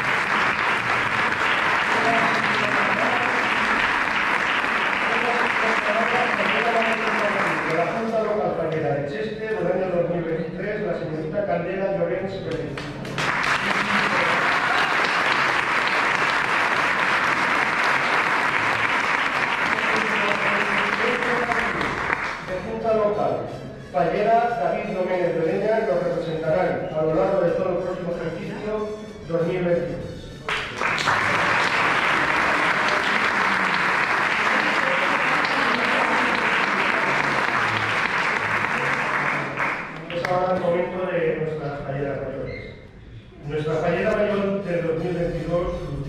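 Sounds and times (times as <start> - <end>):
people applauding: 0.0 - 8.4, 12.5 - 22.8, 30.4 - 40.9.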